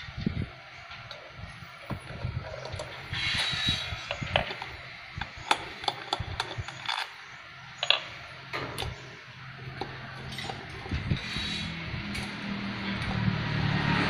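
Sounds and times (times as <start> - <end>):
wrench clicking on bolts: 1.9 - 7.2, 7.8 - 9.0.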